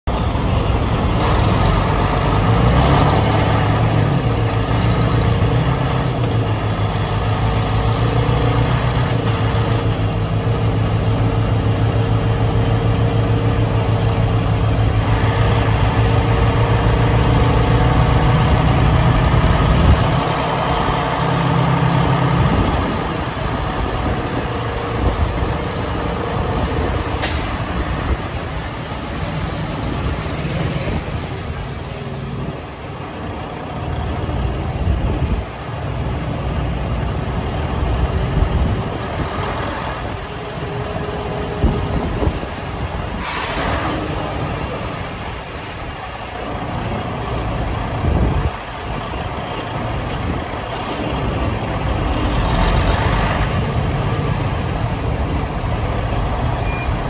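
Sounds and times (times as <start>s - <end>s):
truck diesel engine running: 0.0s - 57.0s
air hiss: 43.1s - 43.9s.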